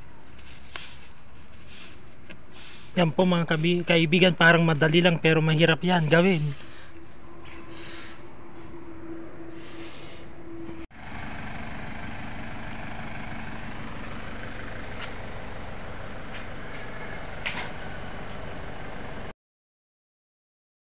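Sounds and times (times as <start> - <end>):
engine running: 6.0 - 19.3.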